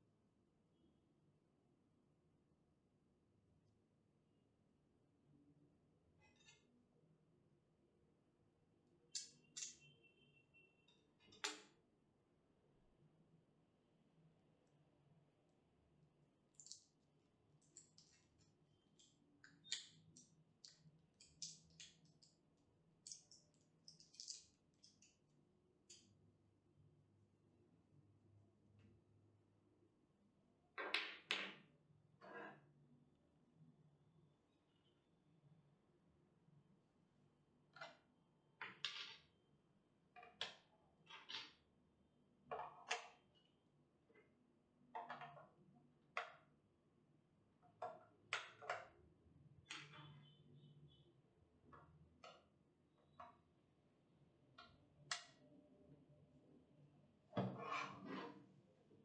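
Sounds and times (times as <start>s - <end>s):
gloves rustling and clicking: 16.5s - 22.4s, 23.0s - 25.2s.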